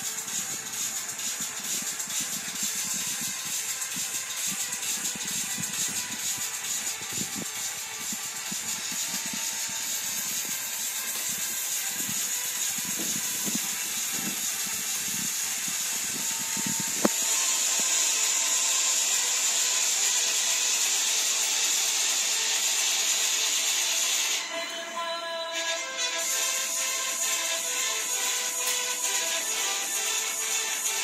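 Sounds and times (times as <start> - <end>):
steady hiss: 0.0 - 24.4.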